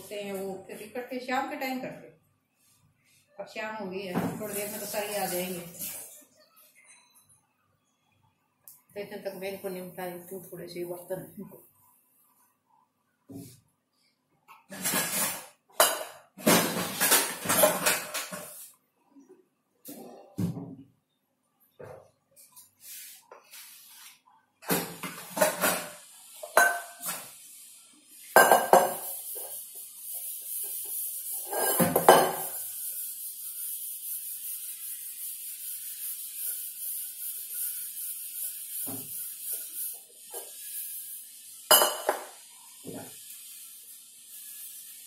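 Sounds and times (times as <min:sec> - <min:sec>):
running tap water: 0:04.2 - 0:06.2, 0:24.8 - 0:45.0
pots and utensils clattering in sink: 0:14.5 - 0:18.7, 0:24.6 - 0:27.4, 0:28.3 - 0:32.9, 0:41.7 - 0:43.2.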